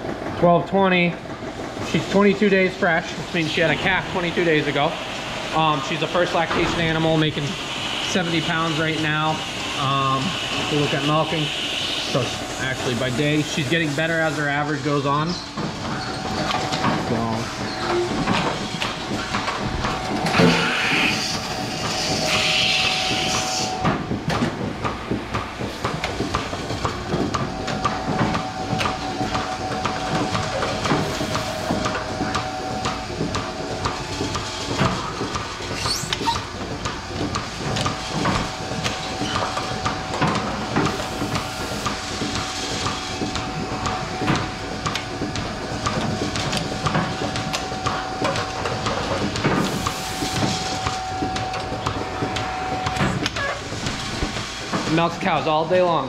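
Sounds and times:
air hissing: 0:03.3 - 0:15.3, 0:19.3 - 0:23.8, 0:30.2 - 0:33.1, 0:49.5 - 0:51.3.

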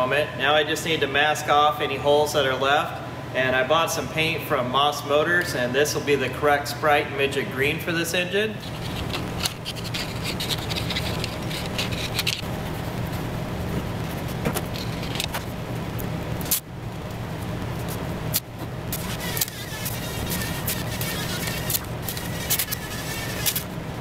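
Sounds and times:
workshop machine hum and hiss: 0:00.0 - 0:24.0
scraping and crinkling: 0:08.6 - 0:23.8.

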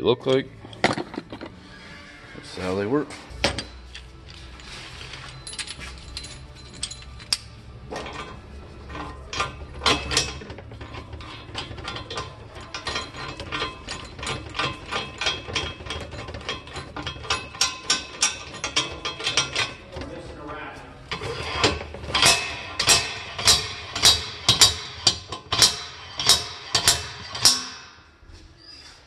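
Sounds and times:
metal rattling and clicking: 0:03.4 - 0:28.1
sharp metal knocks: 0:21.5 - 0:28.1.

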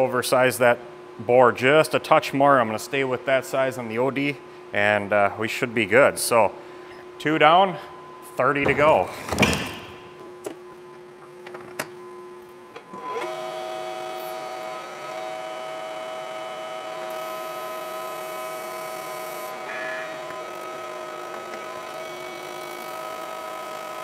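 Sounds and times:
lathe machine hum: 0:13.0 - 0:24.0
thin high whine: 0:19.3 - 0:21.1.

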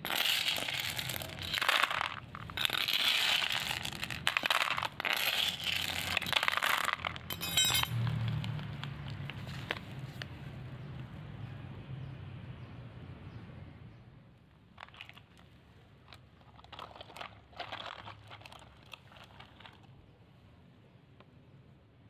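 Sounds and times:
faint crinkling and clicking: 0:14.8 - 0:20.0.

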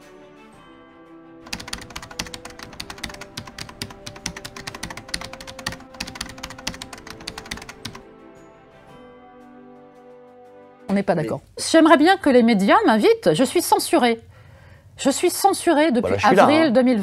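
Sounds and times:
soft background music: 0:00.0 - 0:14.3, 0:15.0 - 0:17.0
keyboard typing clicks: 0:01.5 - 0:08.0.

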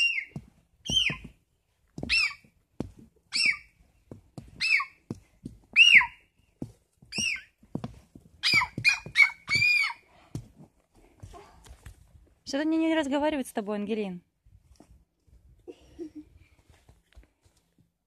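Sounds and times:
child making squeaky bird calls: 0:00.0 - 0:01.2, 0:02.1 - 0:02.4, 0:03.3 - 0:03.7, 0:04.6 - 0:05.0, 0:05.8 - 0:06.2, 0:07.2 - 0:07.5, 0:08.4 - 0:10.0.

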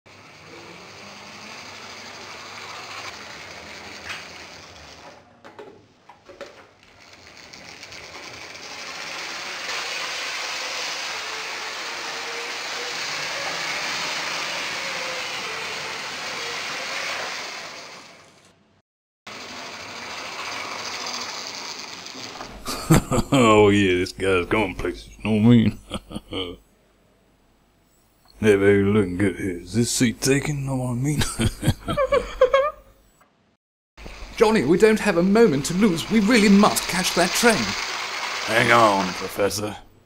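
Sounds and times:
toy train motor whirring: 0:00.1 - 0:05.3, 0:06.4 - 0:18.6, 0:19.3 - 0:23.1, 0:34.0 - 0:39.8
wheels on plastic track: 0:00.1 - 0:18.6, 0:19.3 - 0:23.6, 0:34.0 - 0:39.9.

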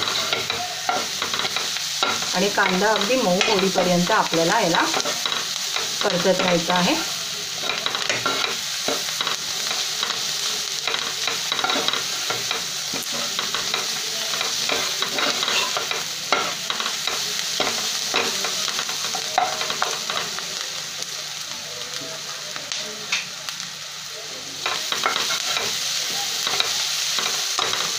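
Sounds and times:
steel spoon scraping a pan: 0:00.0 - 0:20.3, 0:24.6 - 0:27.9
onions sizzling in hot oil: 0:00.0 - 0:27.9.

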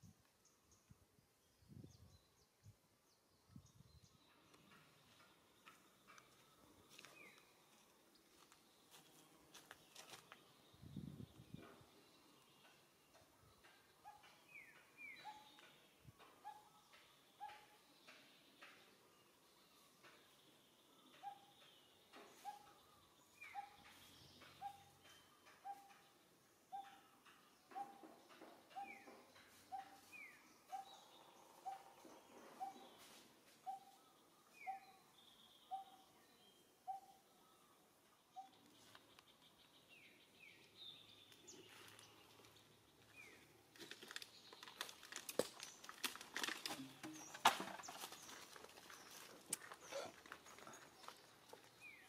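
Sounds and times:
bird chirps: 0:09.9 - 0:46.0
crackling clicks and rustles: 0:43.7 - 0:51.8.

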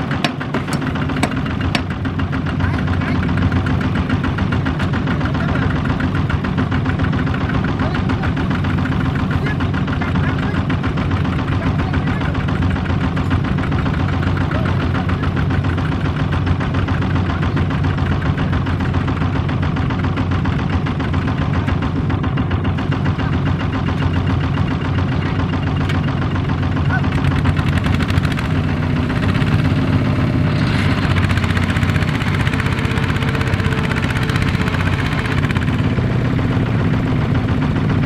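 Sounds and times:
diesel engine knocking steadily: 0:00.0 - 0:38.0.

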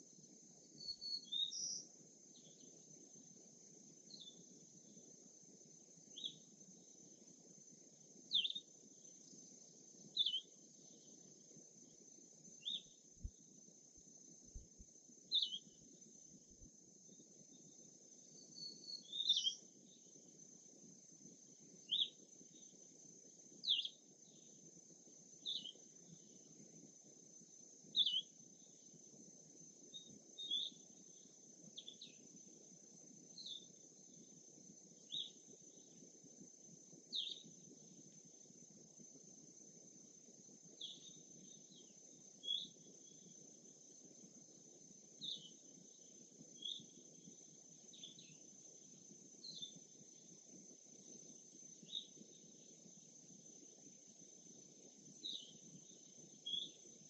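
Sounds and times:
insect drone: 0:00.0 - 0:57.0
songbird chirping: 0:00.6 - 0:02.9, 0:04.1 - 0:05.1, 0:06.0 - 0:07.2, 0:08.2 - 0:20.2, 0:21.7 - 0:22.8, 0:23.6 - 0:24.6, 0:25.4 - 0:26.6, 0:28.0 - 0:28.9, 0:29.9 - 0:32.4, 0:33.4 - 0:34.3, 0:34.9 - 0:36.0, 0:37.1 - 0:38.1, 0:40.8 - 0:43.4, 0:45.2 - 0:50.4, 0:51.4 - 0:52.8, 0:55.1 - 0:57.0.

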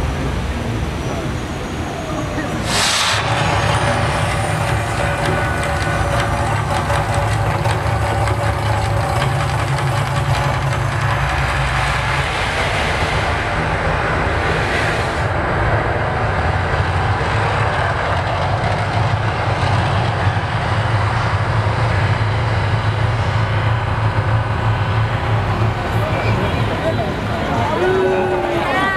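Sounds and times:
hissing rush of gas flames: 0:00.3 - 0:09.2, 0:10.0 - 0:18.5
low rumble: 0:02.4 - 0:28.7.

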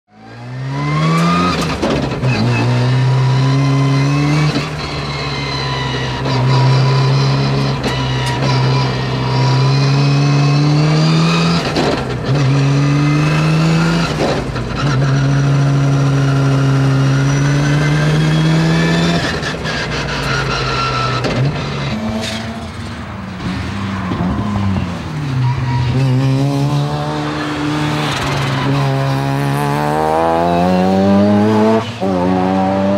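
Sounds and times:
rotary car engine accelerating: 0:00.1 - 0:32.9.

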